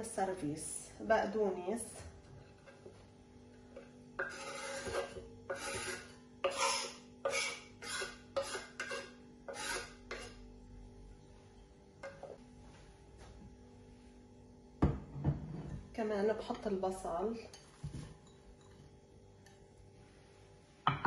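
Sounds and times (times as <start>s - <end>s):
knife scraping wooden cutting board: 4.2s - 10.4s.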